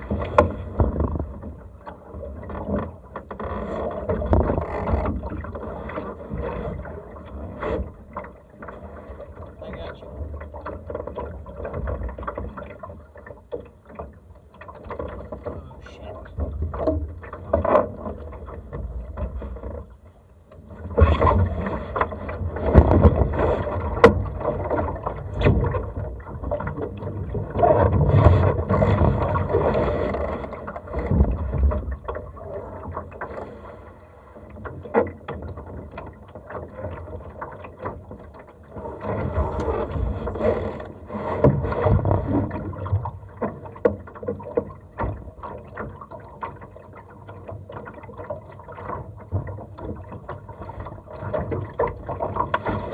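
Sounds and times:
water splashing along hull: 0:00.0 - 0:52.9.

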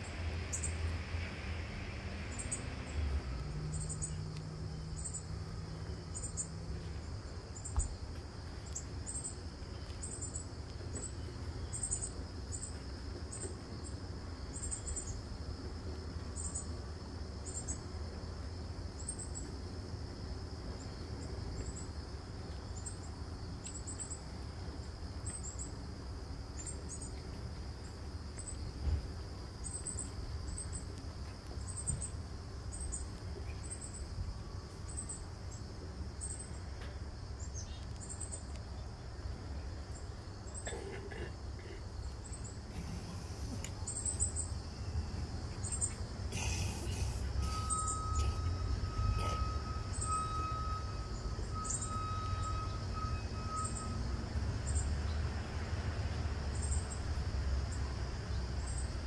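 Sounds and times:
insects chirping: 0:00.0 - 0:59.0.

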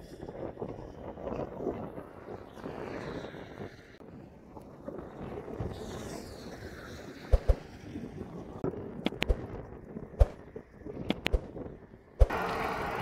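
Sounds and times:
wind rumbling on microphone: 0:00.0 - 0:13.0
sharp clicks or knocks: 0:09.1 - 0:09.4, 0:10.2 - 0:10.4, 0:11.1 - 0:11.5
vehicle passing: 0:12.2 - 0:13.0.

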